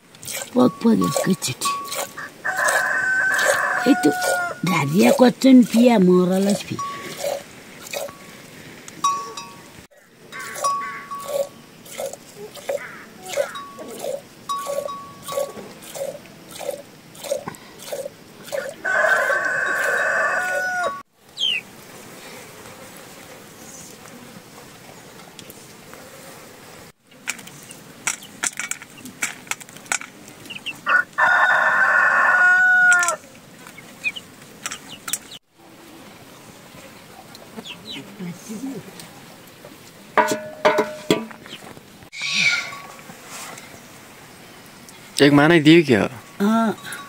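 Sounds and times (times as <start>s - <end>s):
rooster crowing: 2.2s - 4.8s, 18.5s - 21.0s, 30.8s - 33.2s
short clicks and calls: 32.8s - 33.2s.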